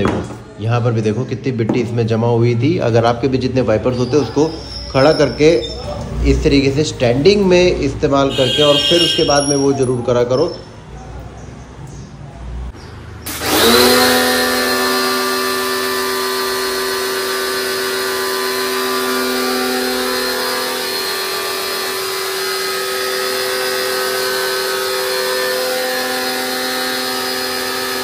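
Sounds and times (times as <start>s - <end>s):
pressure washer motor whine: 7.6s - 9.7s, 13.2s - 28.0s.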